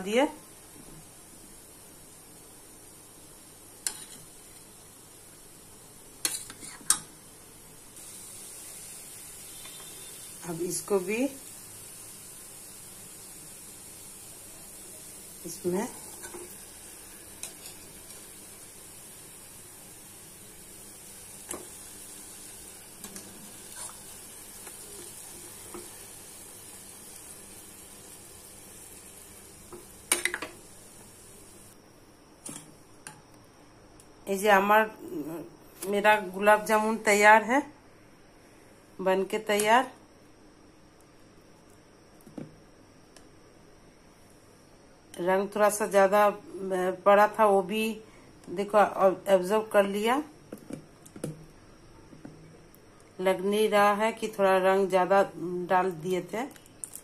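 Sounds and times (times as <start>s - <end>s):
food sizzling in hot oil: 0.0s - 31.8s.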